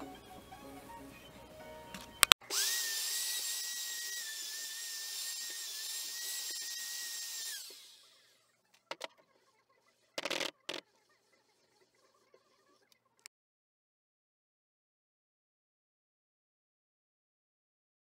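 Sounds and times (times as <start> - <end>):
router high whine: 2.4 - 9.1.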